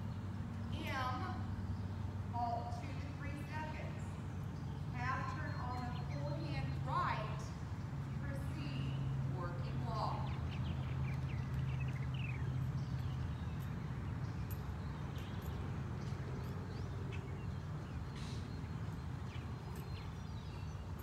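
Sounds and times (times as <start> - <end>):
bird chirps: 2.9 - 9.1, 10.1 - 21.0.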